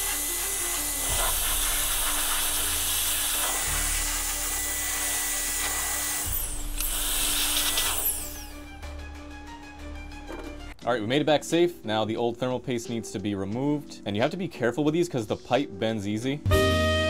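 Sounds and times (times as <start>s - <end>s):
air duster hissing jet: 0.0s - 8.6s.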